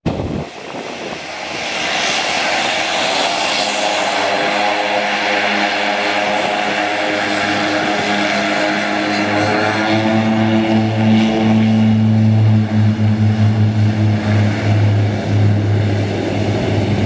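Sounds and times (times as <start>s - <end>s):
turboprop airliner taxiing: 0.1s - 17.0s.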